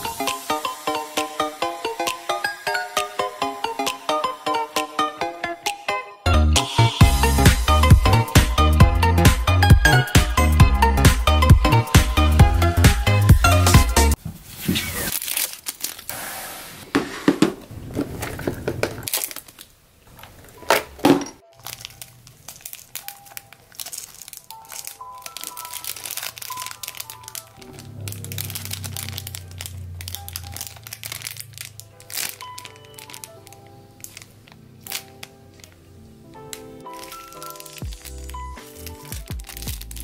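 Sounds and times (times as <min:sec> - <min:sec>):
soft background music: 0:00.0 - 0:14.2, 0:20.6 - 0:40.0
plastic bag crinkling: 0:14.8 - 0:16.2, 0:17.7 - 0:20.7, 0:21.4 - 0:40.0
fabric bin scraping rustle: 0:16.2 - 0:19.1.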